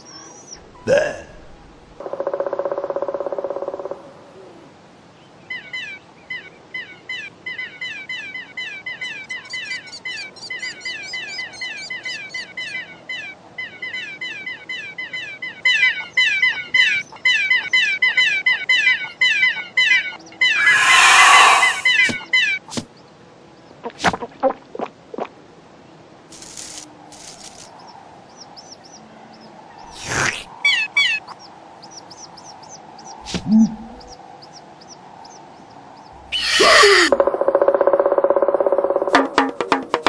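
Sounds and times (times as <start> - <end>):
chicks cheeping: 26.4 - 37.2.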